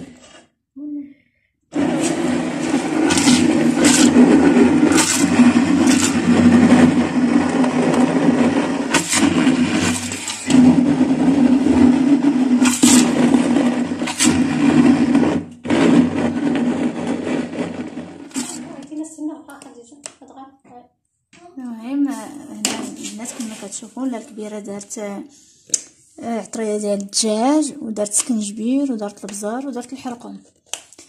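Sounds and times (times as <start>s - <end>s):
stick blender motor hum: 1.7s - 18.9s.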